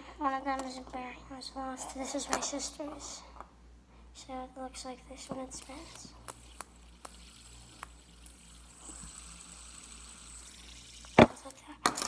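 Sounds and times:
fidget spinner whirring: 1.7 - 3.2, 4.2 - 12.0
fidget spinner clicks: 5.2 - 12.0.

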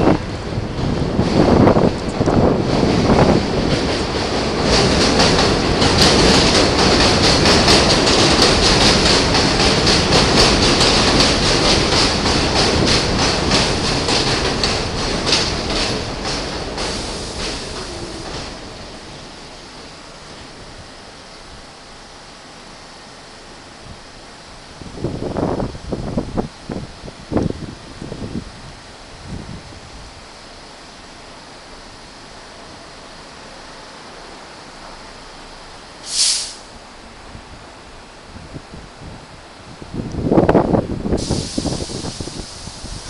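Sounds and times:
train wheels clicking over rail joints: 0.0 - 21.5, 40.0 - 43.0
steady low hiss: 0.0 - 43.0
train braking whine: 15.2 - 22.2, 35.3 - 36.8, 41.1 - 43.0.

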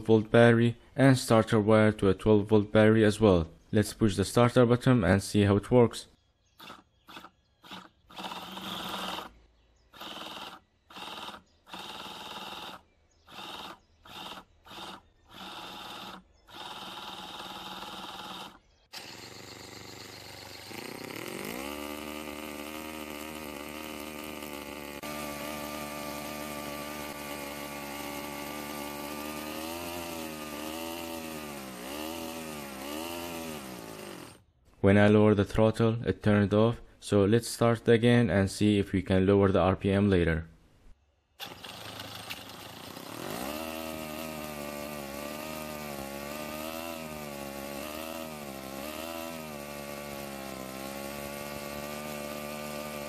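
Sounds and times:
small engine running: 6.5 - 34.5, 41.4 - 53.0
electric starter motor cranking: 6.6 - 34.5, 41.4 - 53.0.

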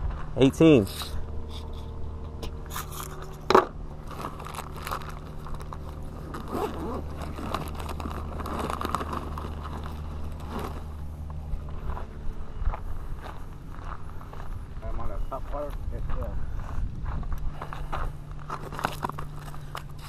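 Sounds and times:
steady low hum: 0.0 - 20.0
backpack rustling and rummaging: 2.7 - 11.4, 18.5 - 20.0.

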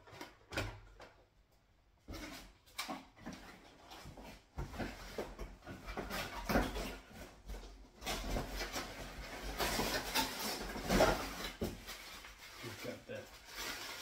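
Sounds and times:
packaging rustling: 8.0 - 14.0.

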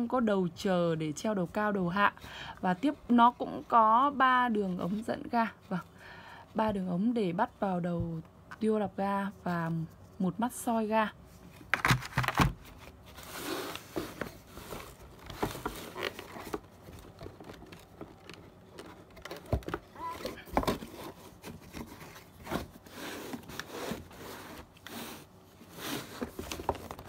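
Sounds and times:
rustling plastic and cardboard: 11.3 - 27.0.

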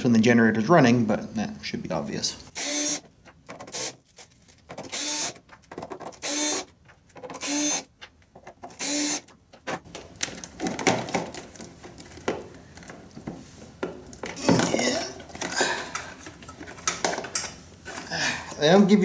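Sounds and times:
cordless power driver whirring: 2.6 - 3.0, 4.9 - 5.4, 6.2 - 6.7, 7.4 - 7.9, 8.8 - 9.3.

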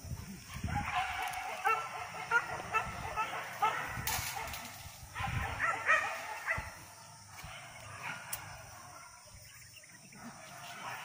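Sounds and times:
dogs yipping: 0.4 - 9.3.

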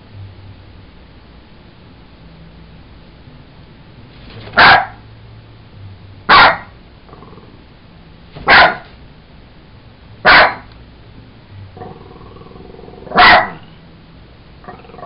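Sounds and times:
dog barking: 4.5 - 5.0, 6.3 - 6.8, 8.4 - 9.0, 10.2 - 10.7, 13.0 - 13.7.

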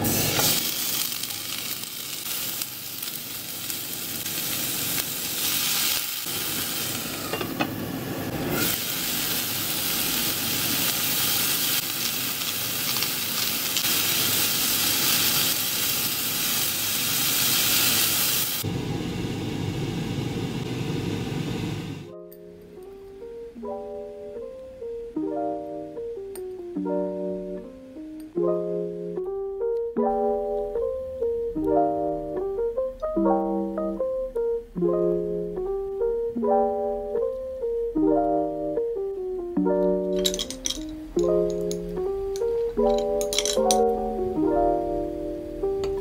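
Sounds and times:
vegetables sizzling in a frying pan: 0.0 - 20.4.

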